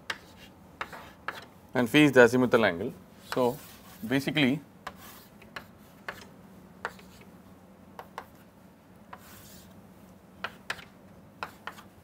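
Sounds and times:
chalk tapping and scraping: 0.0s - 1.5s, 3.2s - 7.3s, 8.0s - 8.5s, 9.1s - 9.8s, 10.4s - 12.0s
faint steady hum: 0.0s - 12.0s.

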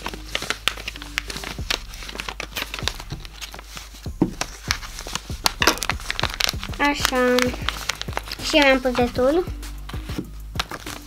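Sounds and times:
paper crinkling and rustling: 0.0s - 11.0s.

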